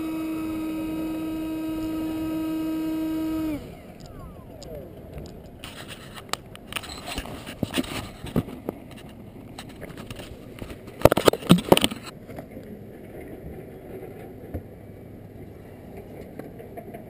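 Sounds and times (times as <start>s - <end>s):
camera handling clicks and rubbing: 5.2s - 12.1s.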